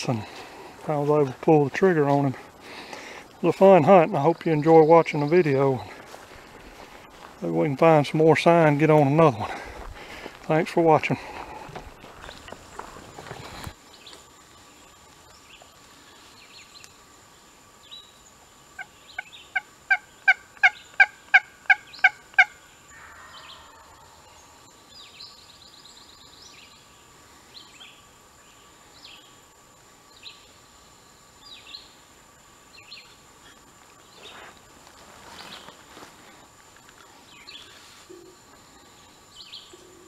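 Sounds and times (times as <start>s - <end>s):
songbirds chirping: 0.0s - 40.0s
distant wild turkey gobble: 18.8s - 24.4s.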